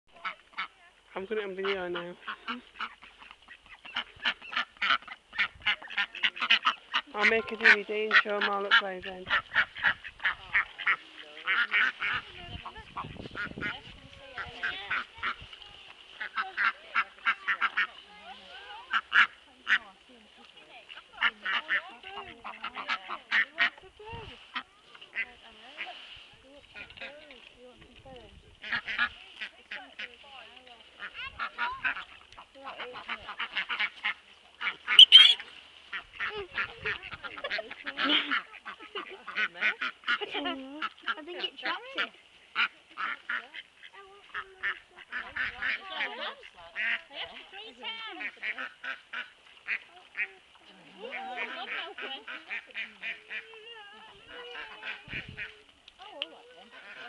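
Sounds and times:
ducks quacking: 0.1s - 27.4s, 28.6s - 55.7s, 56.4s - 57.0s
loud shrill duck call: 34.9s - 35.4s.

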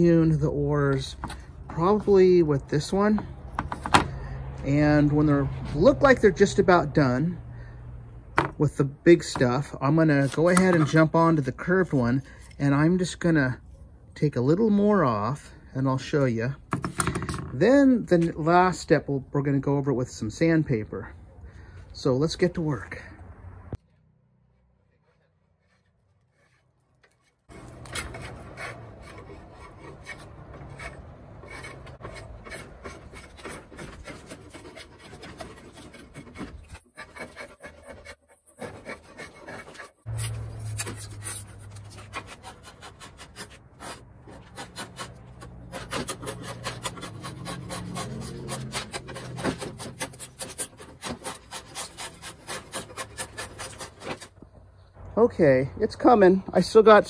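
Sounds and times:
drawknife scraping wood: 9.2s - 13.1s, 24.6s - 54.5s.

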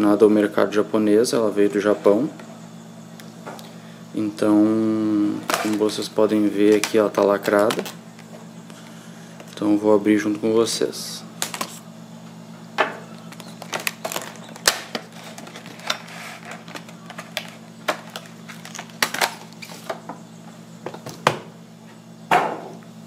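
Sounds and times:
low steady hum: 0.0s - 23.0s
plastic wrapping crinkling: 5.4s - 6.0s, 6.6s - 8.3s, 13.2s - 19.9s.

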